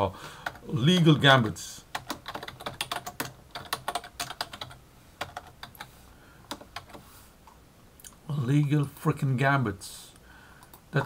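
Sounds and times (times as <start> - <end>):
computer keyboard typing: 0.4 - 5.9, 6.5 - 7.0.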